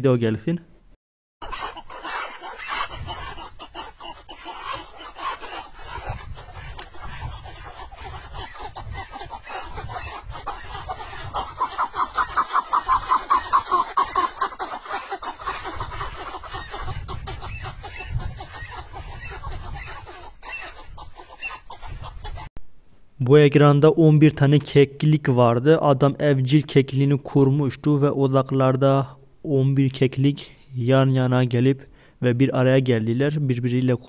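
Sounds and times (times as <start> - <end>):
partridges clucking: 1.4 - 20.8.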